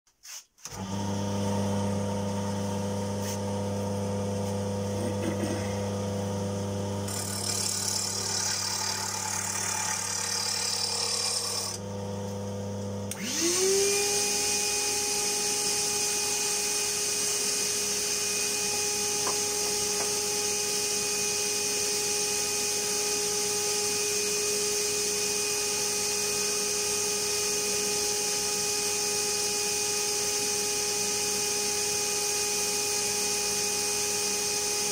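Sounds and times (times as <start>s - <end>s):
motor spinning up with whine: 0.7s - 34.8s
lathe electrical hum: 0.8s - 21.2s.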